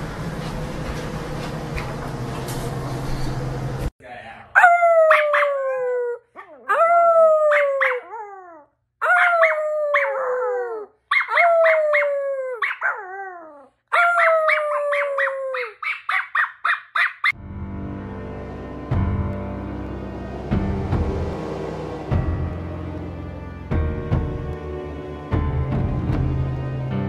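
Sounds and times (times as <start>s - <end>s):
dog yipping: 4.6s - 5.8s, 6.4s - 17.4s
dog howling: 4.6s - 15.8s
music: 17.4s - 27.0s.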